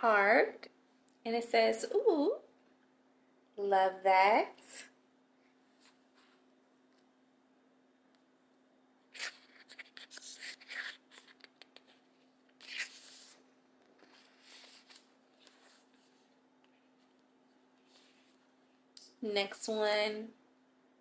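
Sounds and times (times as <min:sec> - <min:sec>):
paper pages rustling and sliding: 0:09.1 - 0:16.3.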